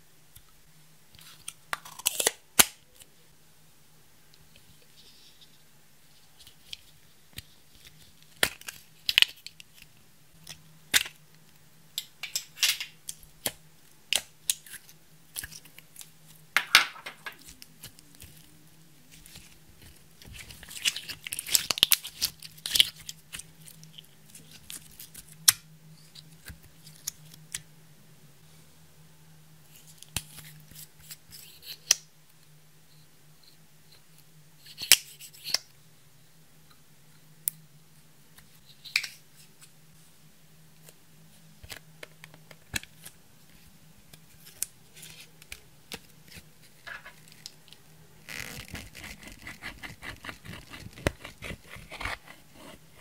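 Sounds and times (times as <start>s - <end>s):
faint steady hum: 0.0s - 53.0s
crackling scrapes: 48.3s - 53.0s.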